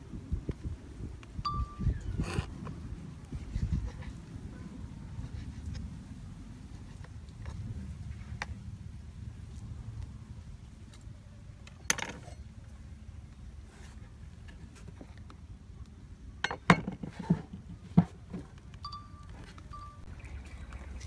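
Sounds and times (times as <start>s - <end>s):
clinks: 18.8s - 20.1s.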